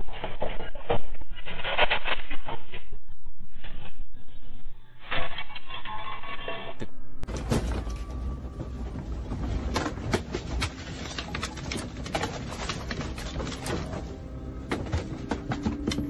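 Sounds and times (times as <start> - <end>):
low rumble: 6.6 - 16.0.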